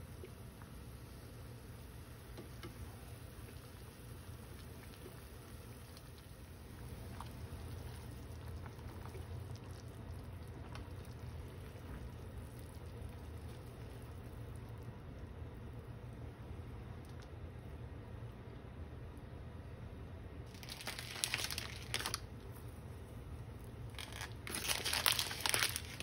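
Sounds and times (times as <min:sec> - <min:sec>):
soup bubbling in saucepan: 0:00.0 - 0:18.8.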